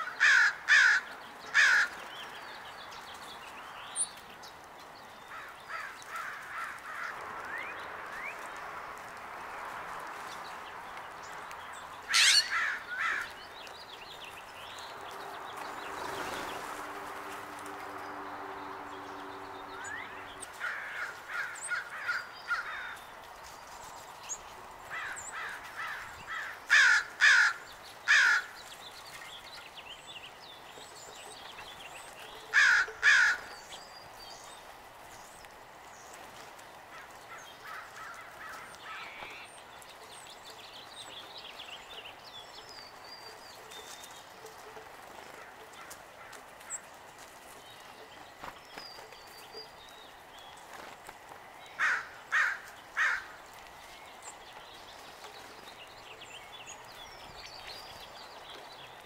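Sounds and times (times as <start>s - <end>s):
songbird chirps: 0.0s - 59.0s
harsh jay calls: 12.1s - 13.3s.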